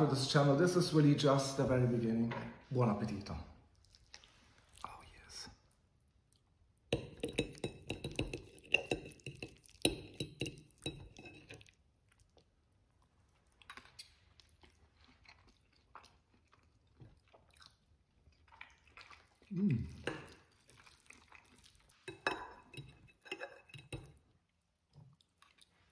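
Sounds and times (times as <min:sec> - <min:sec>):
chewing: 0:03.7 - 0:05.0, 0:07.5 - 0:25.9
fork scraping a ceramic plate: 0:07.0 - 0:11.7, 0:22.1 - 0:24.2.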